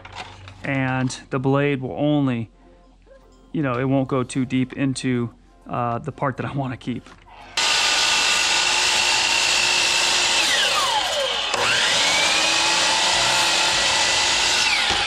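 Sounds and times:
miter saw running: 0:07.5 - 0:15.0
saw blade winding down: 0:07.5 - 0:15.0.

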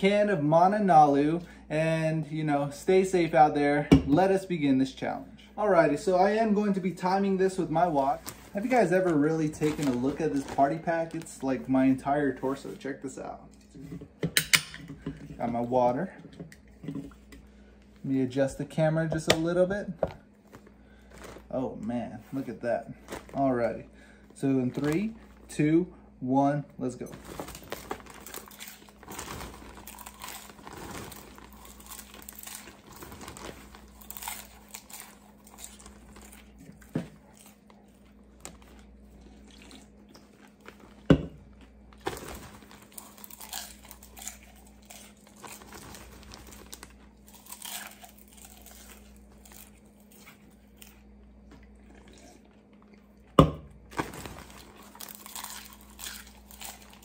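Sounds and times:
plastic bag crinkling: 0:05.8 - 0:12.9, 0:27.0 - 0:51.2, 0:53.8 - 0:57.0
popcorn crunching and chewing: 0:27.0 - 0:57.0.

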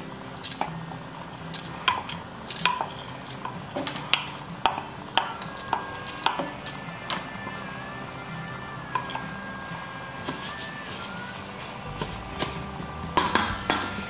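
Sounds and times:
bowl and spoon clinking on pot: 0:01.8 - 0:07.2.

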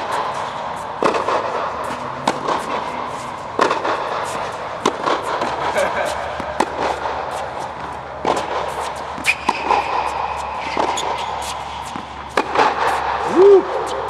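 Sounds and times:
tennis balls struck and bouncing: 0:00.0 - 0:14.0
shoe squeak: 0:08.7 - 0:12.4.

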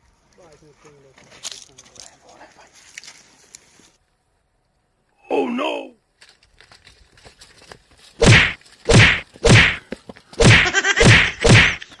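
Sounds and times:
slaps and punches: 0:08.2 - 0:09.8, 0:10.4 - 0:11.9.

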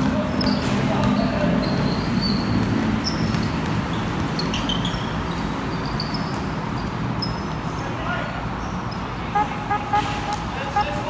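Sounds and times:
sneaker squeaks on court floor: 0:00.0 - 0:07.8
basketball game background noise: 0:00.0 - 0:11.0.

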